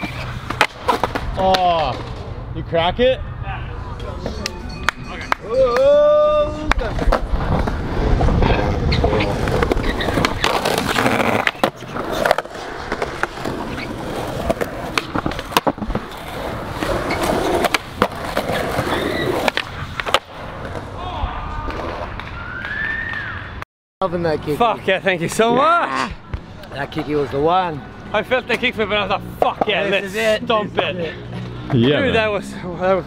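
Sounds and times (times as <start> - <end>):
skateboard wheels rumbling: 0.0 - 2.4, 5.5 - 23.4.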